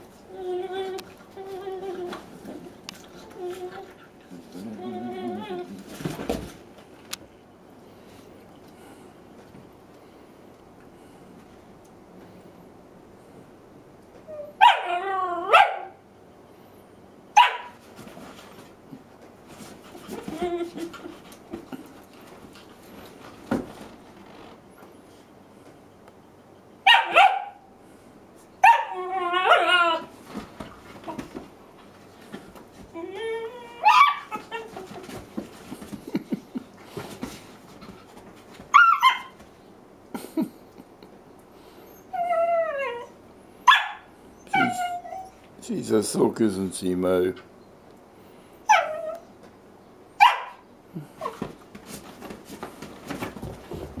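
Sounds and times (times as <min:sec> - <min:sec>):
dogs scuffling: 0:00.0 - 0:07.2, 0:17.7 - 0:25.2, 0:30.0 - 0:39.6, 0:51.0 - 0:54.0
dog yelping: 0:14.3 - 0:16.0, 0:17.4 - 0:17.7, 0:26.9 - 0:27.6, 0:28.6 - 0:30.1, 0:33.1 - 0:35.0, 0:38.7 - 0:39.4, 0:42.0 - 0:45.4, 0:48.7 - 0:49.3, 0:50.2 - 0:50.6
dogs yipping and barking: 0:14.3 - 0:16.0, 0:17.4 - 0:17.8, 0:26.9 - 0:27.6, 0:28.6 - 0:30.1, 0:33.2 - 0:35.0, 0:38.7 - 0:39.4, 0:41.9 - 0:45.4, 0:48.7 - 0:49.2, 0:50.2 - 0:50.6
dog barking: 0:14.6 - 0:14.9, 0:15.5 - 0:16.0, 0:17.4 - 0:17.8, 0:26.9 - 0:27.6, 0:43.7 - 0:44.1, 0:50.2 - 0:50.6
dog bark-howl: 0:14.6 - 0:16.0, 0:26.9 - 0:27.6, 0:28.6 - 0:30.1, 0:33.8 - 0:34.4, 0:43.7 - 0:44.0, 0:50.2 - 0:50.6.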